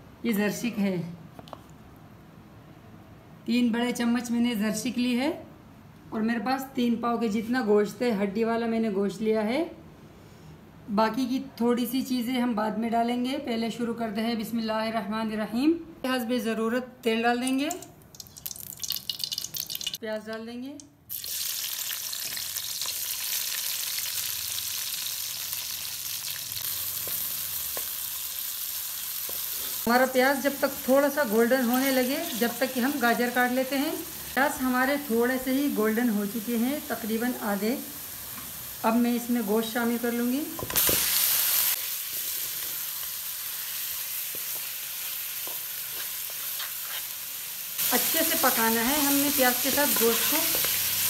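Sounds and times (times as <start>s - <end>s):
onions sizzling in hot oil: 21.1s - 51.0s.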